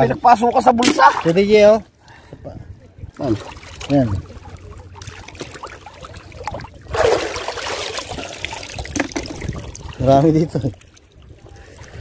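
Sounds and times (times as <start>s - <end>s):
water splashing: 0.8s - 1.5s, 3.2s - 12.0s
shallow water sloshing: 3.0s - 12.0s.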